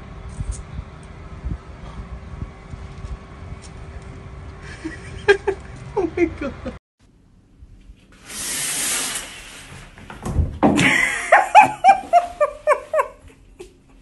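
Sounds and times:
person laughing hard: 4.6 - 6.8, 10.8 - 13.7
brief hiss: 8.2 - 9.8.

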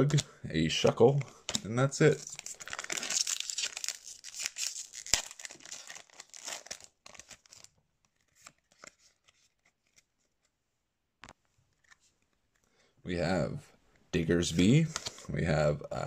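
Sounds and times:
wrapper crackling and crinkling: 2.1 - 9.6.

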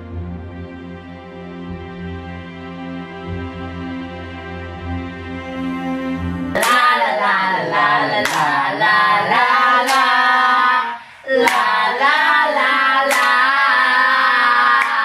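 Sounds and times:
soft background music: 0.0 - 14.7
group singing together: 6.5 - 15.0
people clapping: 6.6 - 10.6, 11.4 - 15.0.

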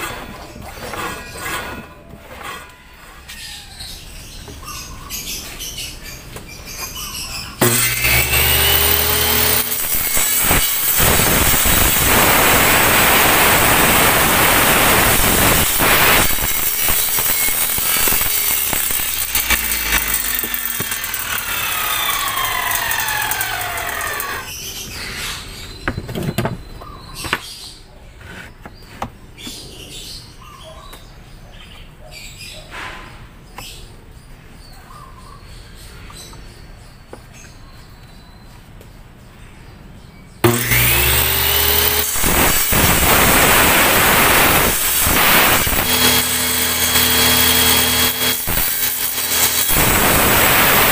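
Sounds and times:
table saw whining: 7.6 - 24.5, 40.4 - 50.9.

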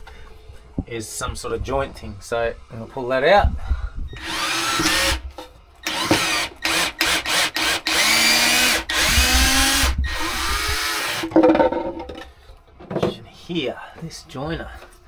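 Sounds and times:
cordless drill whining: 4.2 - 5.2, 5.8 - 11.2.

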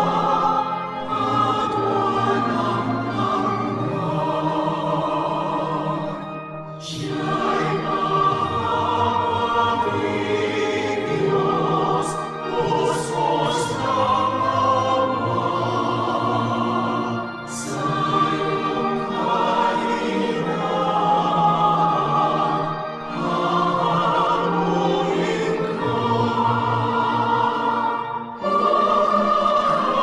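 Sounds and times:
group singing a hymn: 0.0 - 30.0.

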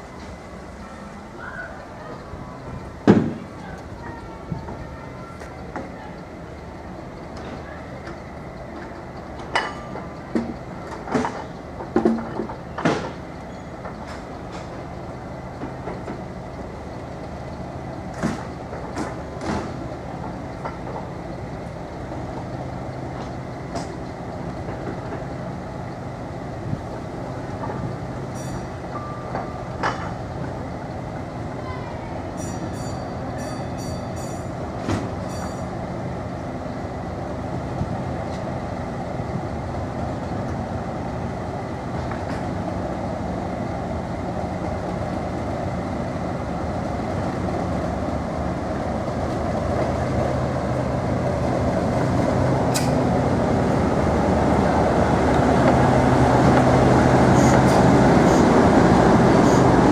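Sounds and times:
locomotive engine running: 0.0 - 59.9
train wheels clacking over rail joints: 7.3 - 14.8, 17.9 - 21.7.

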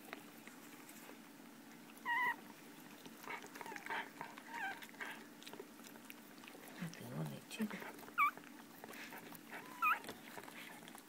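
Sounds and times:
puppies squeaking: 2.0 - 2.5, 3.6 - 5.2, 7.8 - 10.8.

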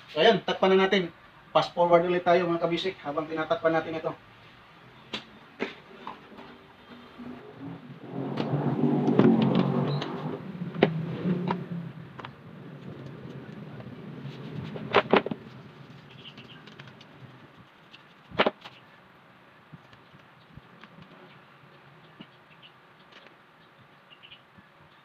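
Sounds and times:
plastic fan housing rattling: 10.8 - 18.8.

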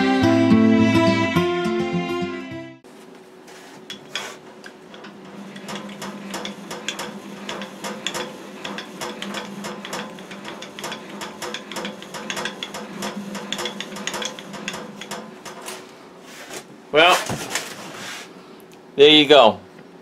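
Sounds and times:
handwheel gearing clicking and rattling: 3.9 - 15.7.

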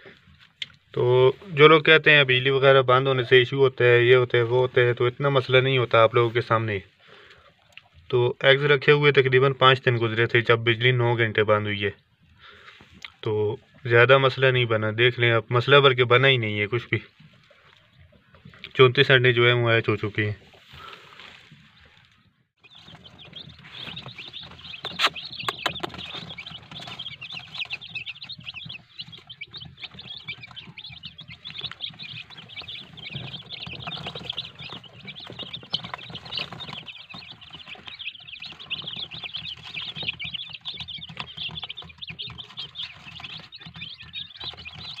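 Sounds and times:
chicks peeping: 0.0 - 45.0
sharp clicks: 24.8 - 27.0.

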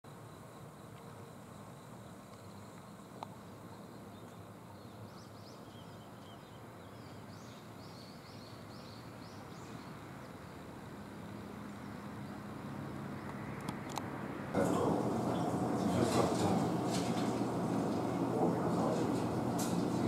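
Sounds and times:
low hum: 14.5 - 20.0
background hush: 14.6 - 20.0.

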